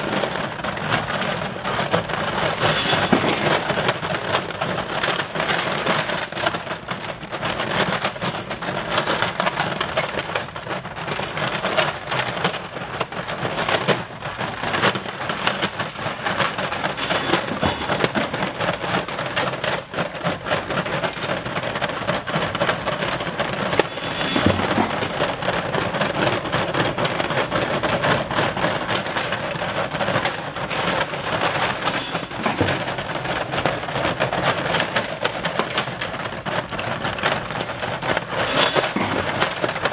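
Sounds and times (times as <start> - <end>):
metal parts clinking on conveyor: 0.0 - 39.9.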